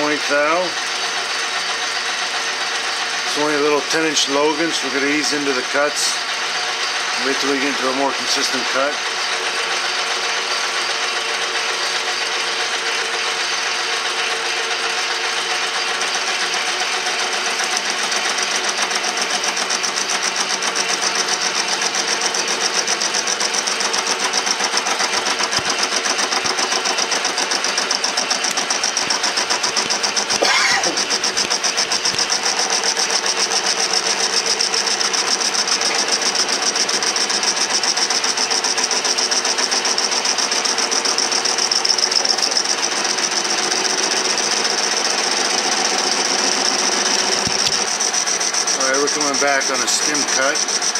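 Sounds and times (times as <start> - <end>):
metal lathe whirring: 0.0 - 50.9
tool cutting hiss: 23.8 - 36.4.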